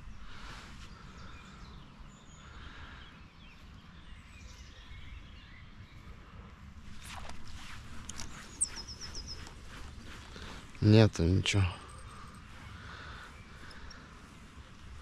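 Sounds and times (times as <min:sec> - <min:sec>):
faint bird chirps: 0:08.1 - 0:15.0.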